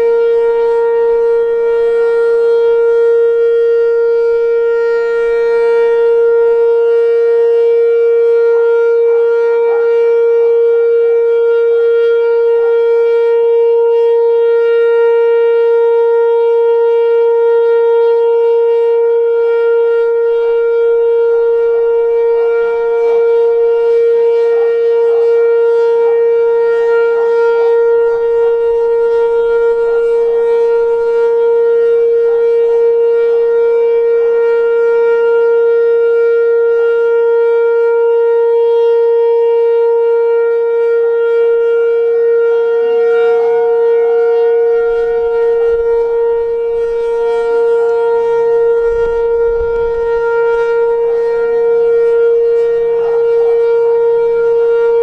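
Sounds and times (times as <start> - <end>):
electronic warning siren steady tone: 0.0 - 55.0.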